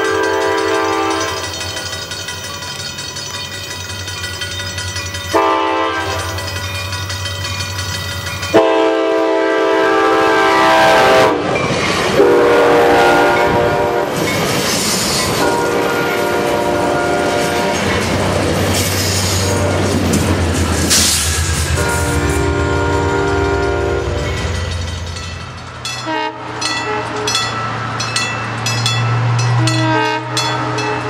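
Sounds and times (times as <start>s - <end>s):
train horn blasts: 0.0s - 1.6s, 5.3s - 6.4s, 8.5s - 11.5s, 12.2s - 14.2s, 15.4s - 17.9s, 19.3s - 20.0s, 21.7s - 24.6s, 26.0s - 27.4s, 29.6s - 31.0s
train wheels clattering on rails: 0.0s - 9.4s, 11.3s - 12.5s, 13.1s - 31.0s.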